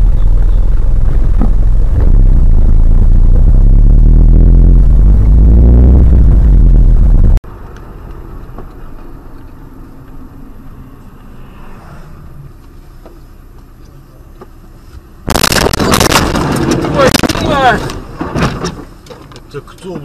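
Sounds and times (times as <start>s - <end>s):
car road rumble: 0.0s - 20.0s
car crash with crunching: 15.3s - 18.9s.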